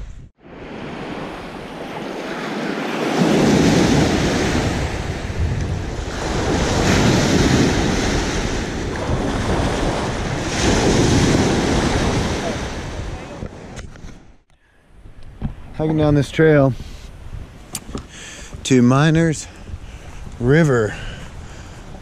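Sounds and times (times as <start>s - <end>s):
wind on microphone: 0.0s - 22.0s
waves washing up a beach: 0.4s - 13.7s.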